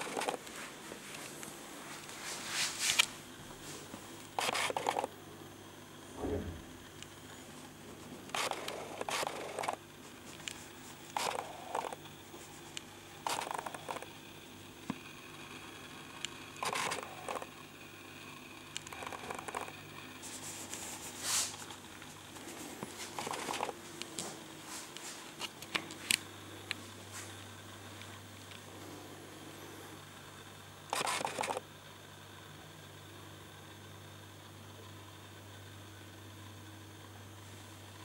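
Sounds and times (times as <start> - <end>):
rustles scrapes and clicks: 0.0 - 5.1, 8.2 - 14.1, 16.6 - 17.5, 18.8 - 26.2, 30.9 - 31.6
faint low hum: 0.0 - 38.0.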